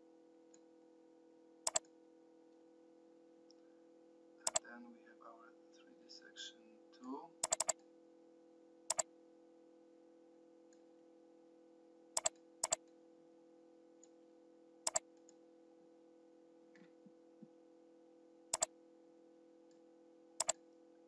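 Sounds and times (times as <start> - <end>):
steady low hum: 0.0 - 21.0
mouse button clicks: 1.7 - 1.9, 7.4 - 7.8, 12.2 - 12.8, 20.4 - 20.6.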